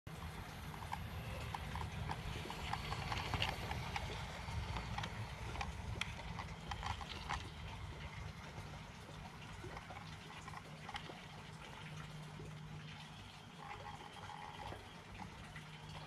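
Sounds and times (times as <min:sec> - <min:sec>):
motor and gearbox rumble: 0:00.1 - 0:16.0
model train wheels clicking: 0:00.2 - 0:08.6.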